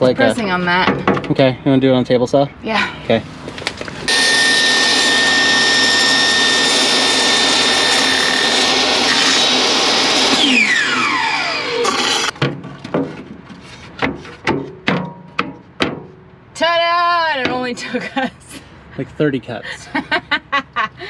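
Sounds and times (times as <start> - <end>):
saw blade spinning down: 4.1 - 12.3
table saw cutting plywood: 4.1 - 12.4.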